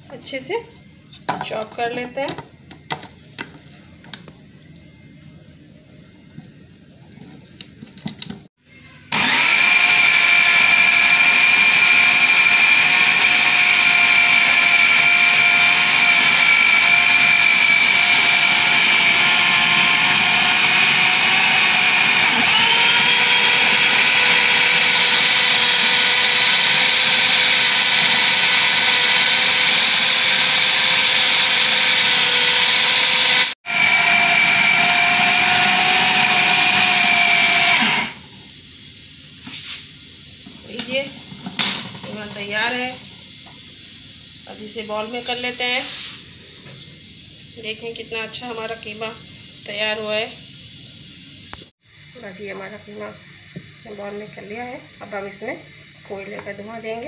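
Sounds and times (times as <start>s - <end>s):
food processor motor whine: 9.1s - 38.4s.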